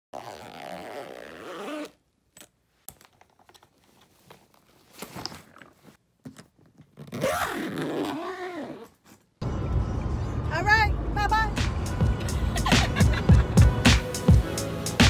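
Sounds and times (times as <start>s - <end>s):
zipper run: 0.1s - 2.0s, 6.8s - 9.3s
soft rustles: 2.7s - 7.0s.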